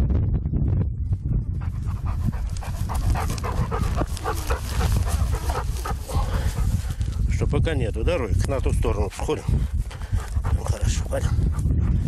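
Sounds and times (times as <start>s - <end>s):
steady low rumble: 0.0s - 12.0s
dog panting: 1.6s - 7.4s, 9.5s - 12.0s.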